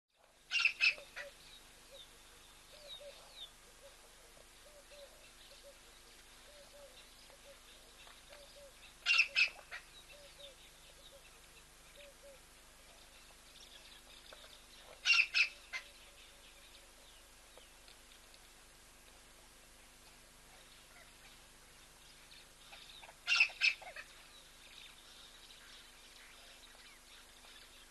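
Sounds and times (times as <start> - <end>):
sharp high bird calls: 0.5 - 1.4, 8.3 - 11.2, 15.0 - 15.9, 23.0 - 24.0
faint small bird chirping: 0.5 - 4.0, 4.6 - 18.3, 20.1 - 27.9.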